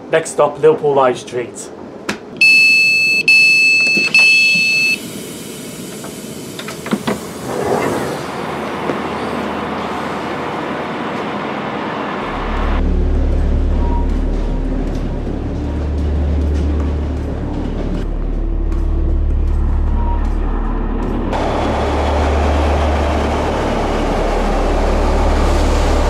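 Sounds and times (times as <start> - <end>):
station noise: 1.7 - 26.0
long high door beeps: 2.4 - 5.9, 19.9 - 20.4
low hum: 7.2 - 26.0.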